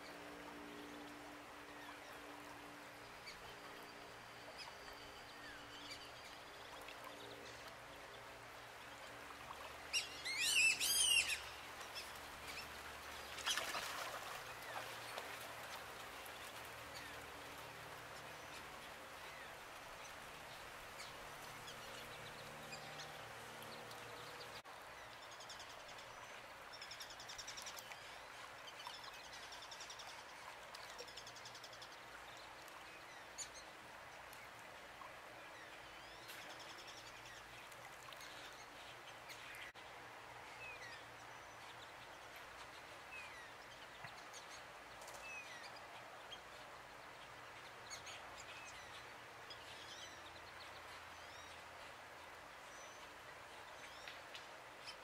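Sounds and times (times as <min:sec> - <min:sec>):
low background noise: 0:00.0 - 0:55.0.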